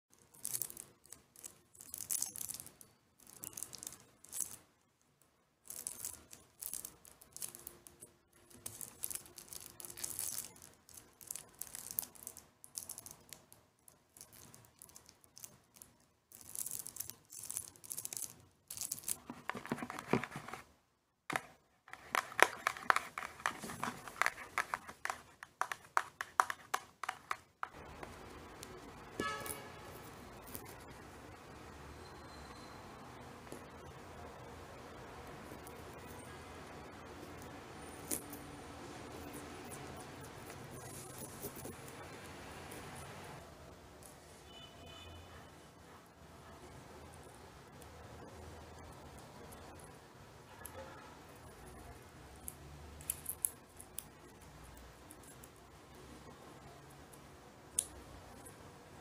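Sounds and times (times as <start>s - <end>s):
nails scratching cucumber skin: 21.3s - 27.8s.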